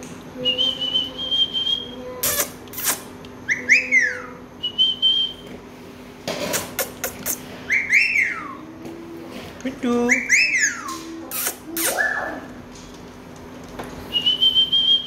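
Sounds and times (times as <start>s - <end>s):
parakeets whistling and chirping: 0.4s - 5.5s, 6.6s - 8.6s, 10.0s - 12.4s, 14.1s - 15.0s.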